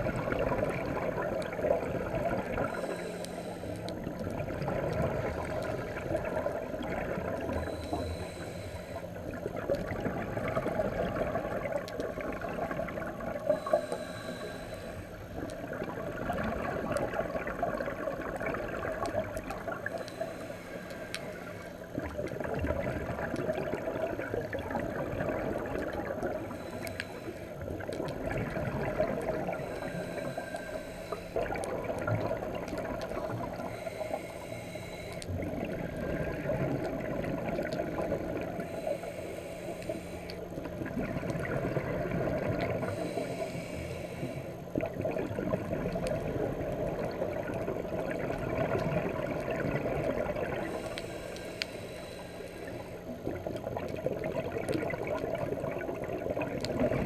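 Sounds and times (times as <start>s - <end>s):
exhaled bubbles gurgling: 0.0s - 57.0s
regulator inhalation hiss: 2.6s - 3.9s, 7.6s - 9.1s, 13.5s - 15.3s, 19.8s - 21.9s, 26.4s - 27.6s, 29.4s - 31.5s, 33.6s - 35.4s, 38.6s - 40.5s, 42.8s - 44.6s, 50.6s - 53.2s.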